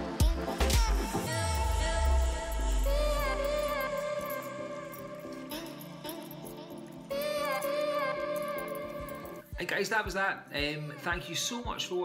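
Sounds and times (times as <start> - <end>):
deep bass: 0.0 - 3.8
instrumental beat with melody: 0.0 - 4.3, 8.4 - 11.8.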